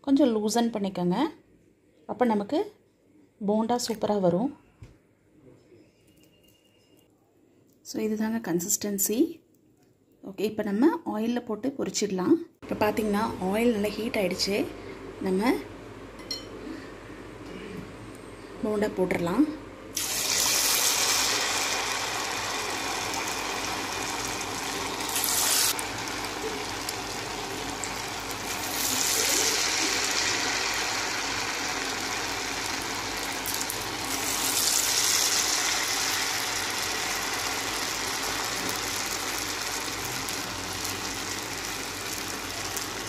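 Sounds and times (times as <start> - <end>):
batter deep-frying in oil: 20.0 - 43.0.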